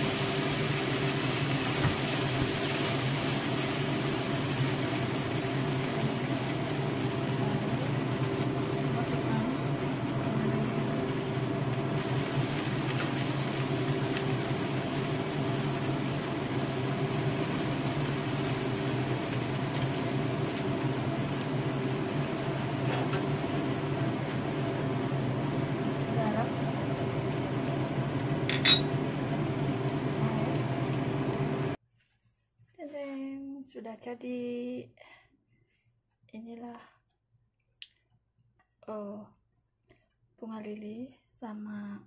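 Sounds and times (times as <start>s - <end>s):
food sizzling in oil: 0.0s - 31.8s
mechanical hum: 0.0s - 35.0s.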